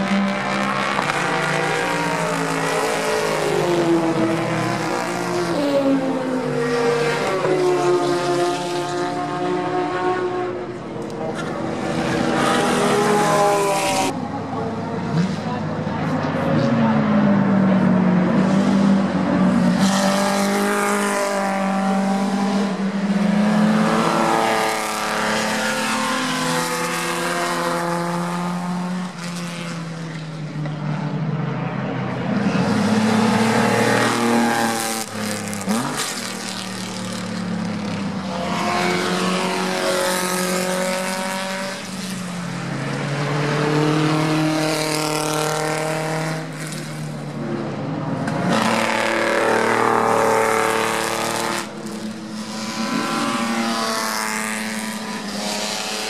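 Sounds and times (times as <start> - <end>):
racing car engines passing: 0.0 - 56.0.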